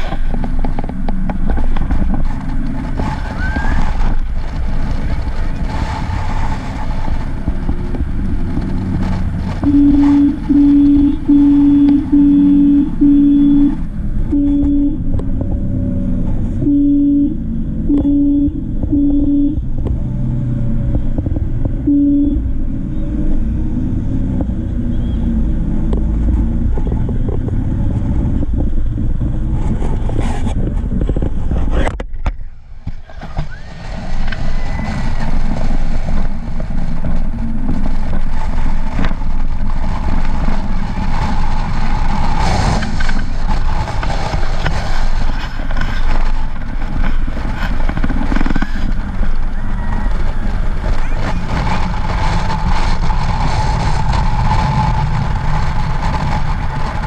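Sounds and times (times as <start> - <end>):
vehicle driving on highway: 0.0 - 57.0
short low tones: 9.6 - 29.0.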